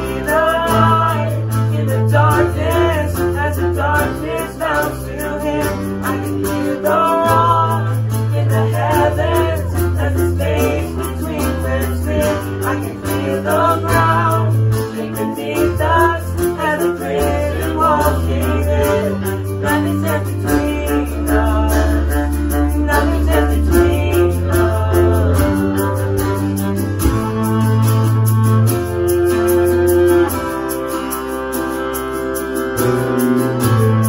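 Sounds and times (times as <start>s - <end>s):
voices singing worship song: 0.0s - 26.7s
acoustic guitar: 0.0s - 34.0s
electric keyboard: 0.0s - 34.0s
low bass notes: 0.0s - 34.0s
violin: 0.0s - 34.0s.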